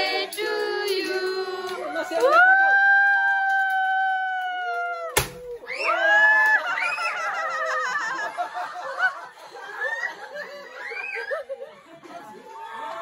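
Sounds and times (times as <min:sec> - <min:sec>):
children squealing: 0:05.5 - 0:08.1, 0:09.8 - 0:11.6
children giggling: 0:06.8 - 0:12.6.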